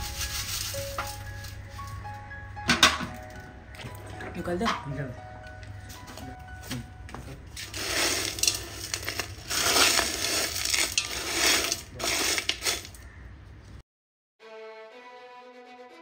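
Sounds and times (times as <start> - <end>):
metal grains clinking in steel bowl: 0.0 - 1.7, 7.6 - 13.0.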